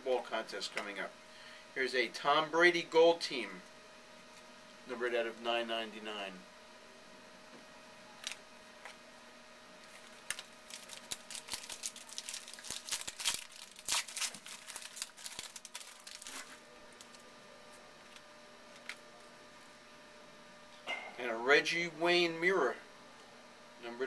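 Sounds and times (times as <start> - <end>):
wrapper tearing and crinkling: 9.8 - 17.2.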